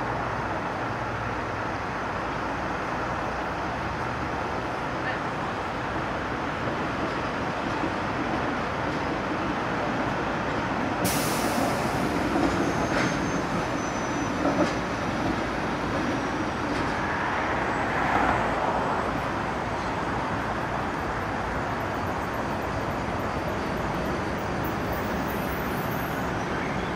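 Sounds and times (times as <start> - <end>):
tram running on street track: 0.0 - 26.9
sharp hiss of air: 11.0 - 12.4.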